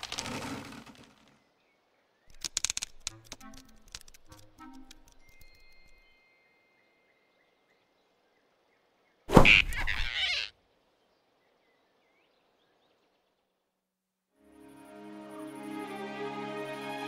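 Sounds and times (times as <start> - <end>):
faint forest ambience: 0.0 - 17.0.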